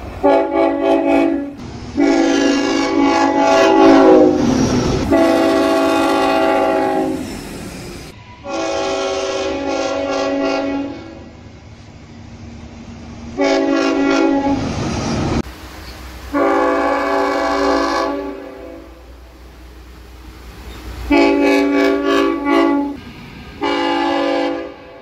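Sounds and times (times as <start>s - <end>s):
train passing rush: 0.0s - 25.0s
train horn blasts: 0.2s - 7.3s, 8.1s - 11.4s, 13.4s - 14.7s, 16.3s - 19.1s, 20.9s - 23.0s, 23.6s - 25.0s.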